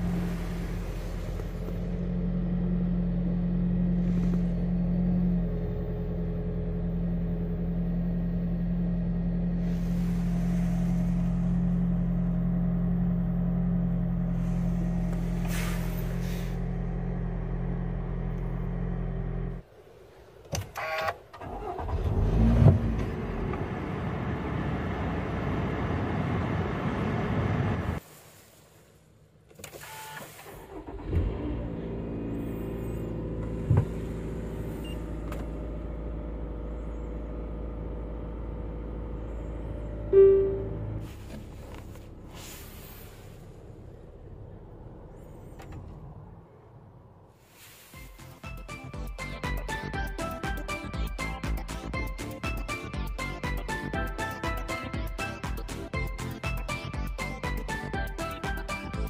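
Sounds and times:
car engine idling: 0.0s - 20.5s, 30.4s - 59.0s
engine cranking and revving: 20.8s - 25.9s, 29.9s - 40.1s.

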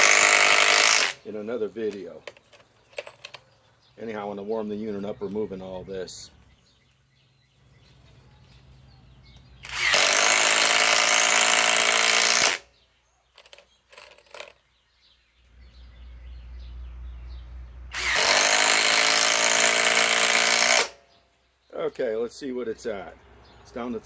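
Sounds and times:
impact driver hammering: 0.0s - 1.2s, 9.7s - 12.6s, 18.0s - 21.0s.

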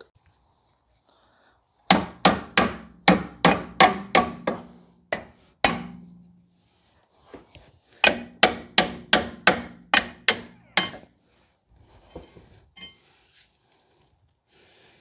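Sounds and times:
hammer blows ringing on metal: 1.9s - 6.3s, 8.0s - 11.1s
faint scraping and handling: 11.8s - 14.2s.

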